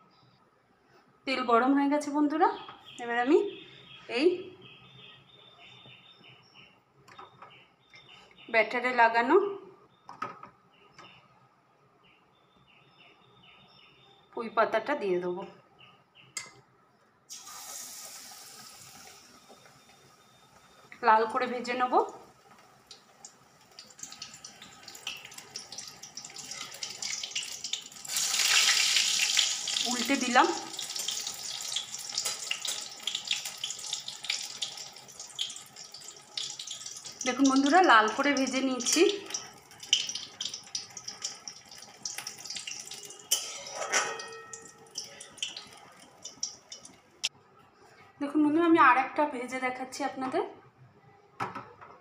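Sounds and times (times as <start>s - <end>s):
fritter sizzling in hot oil: 17.3s - 20.8s, 22.2s - 47.0s.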